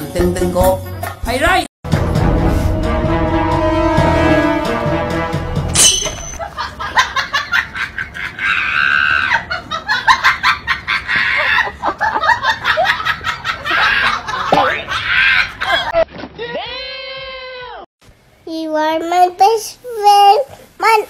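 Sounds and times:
high-pitched cackling laughter: 6.4s - 16.0s.

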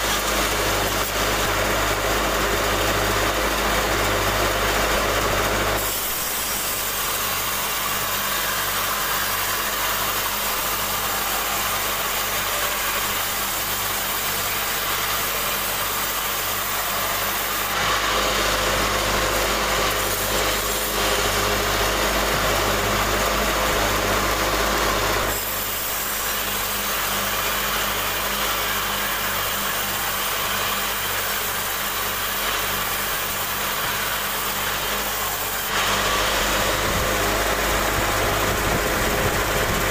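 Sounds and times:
band saw motor humming: 0.0s - 39.9s
saw blade hissing through log: 5.6s - 22.2s, 24.8s - 39.3s.

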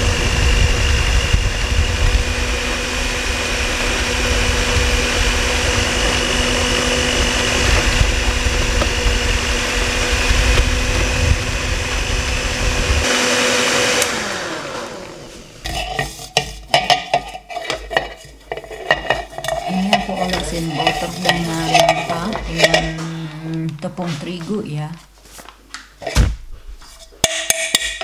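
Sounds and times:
electric stand mixer running: 0.0s - 15.7s
metal pan knocking and clattering: 15.7s - 23.0s, 27.2s - 28.0s.

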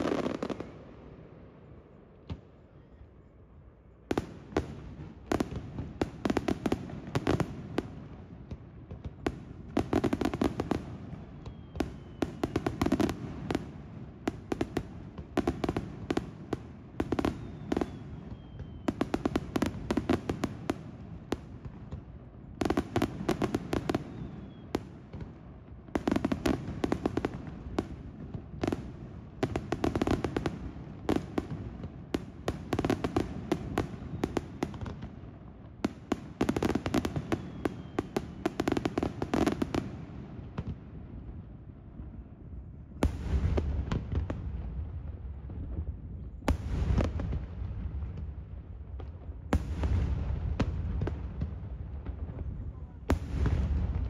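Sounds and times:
fireworks bangs and crackling: 0.0s - 2.7s, 4.0s - 54.0s
falling firework whistle: 11.1s - 13.2s, 17.1s - 19.4s, 23.9s - 24.8s, 36.9s - 38.5s.

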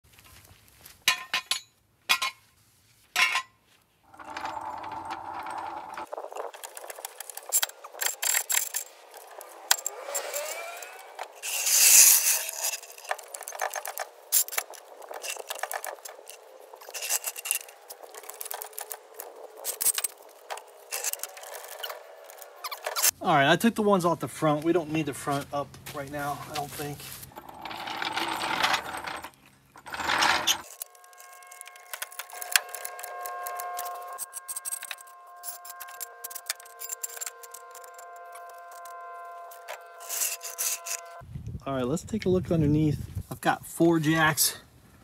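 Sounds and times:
floor jack squeaking: 4.1s - 6.9s, 27.2s - 32.0s.

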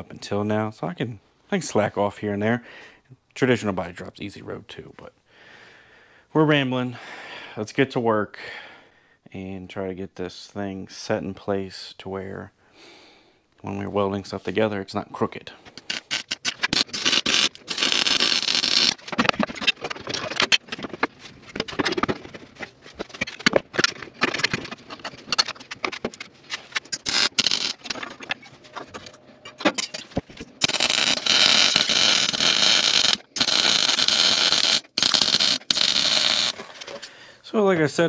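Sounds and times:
welder crackling and sputtering: 15.8s - 21.1s, 22.9s - 37.2s.

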